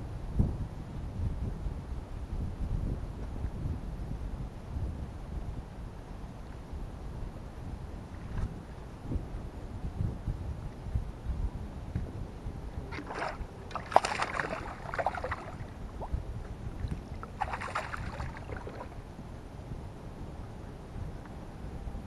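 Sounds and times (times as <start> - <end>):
wind on microphone: 0.0 - 22.0
fish splashing at surface: 12.9 - 15.7, 17.3 - 18.9.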